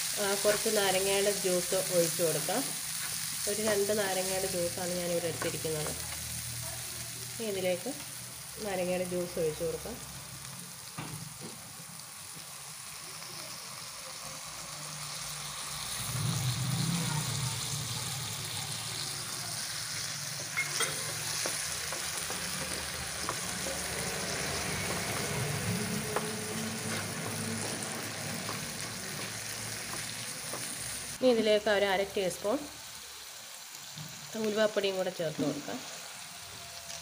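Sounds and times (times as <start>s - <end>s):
beetroot sizzling in a frying pan: 0.0s - 37.0s
spatula tapping a pan: 20.6s - 23.6s, 26.0s - 30.8s.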